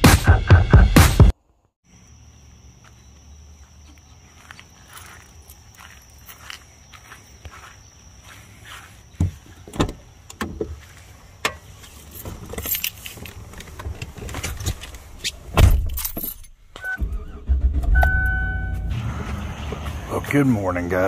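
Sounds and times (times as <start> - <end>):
handling clicks and rattles: 11.4 - 16.6
short beeping tone: 17.9 - 18.9.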